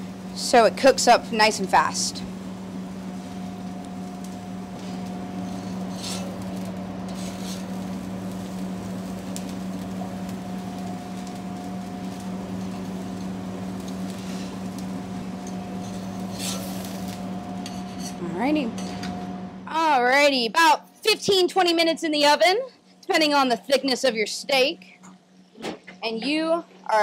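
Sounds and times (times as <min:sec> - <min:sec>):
vegetables sizzling on grill: 0:00.0 - 0:20.7
gas grill: 0:00.0 - 0:27.0
kitchen hood fan hum: 0:00.0 - 0:27.0.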